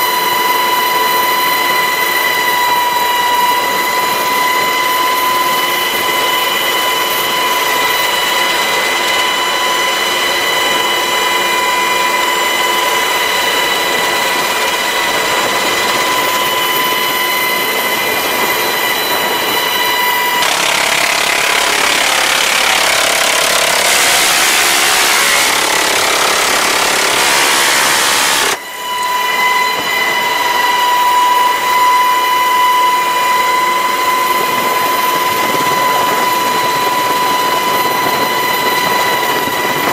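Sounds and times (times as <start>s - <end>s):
helicopter turbine whine: 0.0s - 39.9s
minigun firing buzz: 18.9s - 31.1s.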